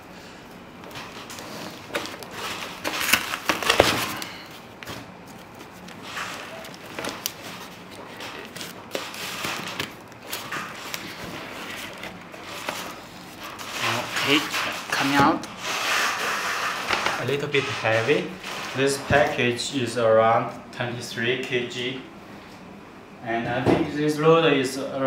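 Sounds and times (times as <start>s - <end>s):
packing foam and plastic rustling: 0.8s - 19.4s.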